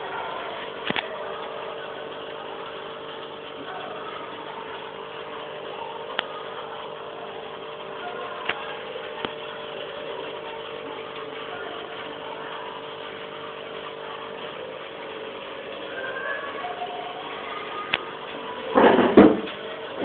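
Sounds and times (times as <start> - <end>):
aquarium pump humming: 0.0 - 20.0
bubbling water: 0.0 - 20.0.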